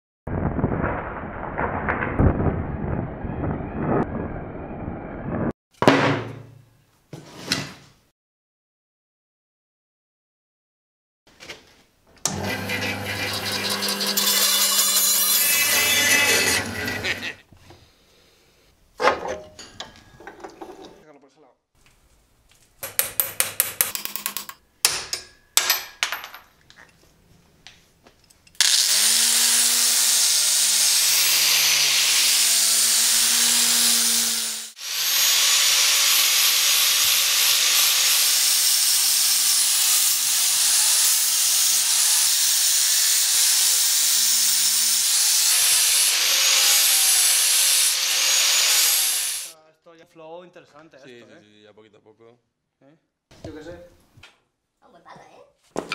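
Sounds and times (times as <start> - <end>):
angle grinder grinding steel: 12.3 - 17.4, 28.6 - 49.6
bandsaw running: 12.3 - 17.4, 28.6 - 49.6.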